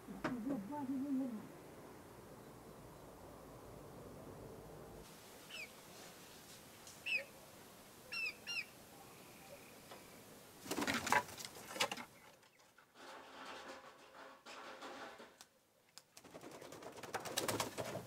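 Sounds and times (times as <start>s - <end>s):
chicken chirps: 5.5s - 5.7s, 7.0s - 7.3s, 8.1s - 8.8s
wing flapping: 10.6s - 12.1s, 16.0s - 18.0s.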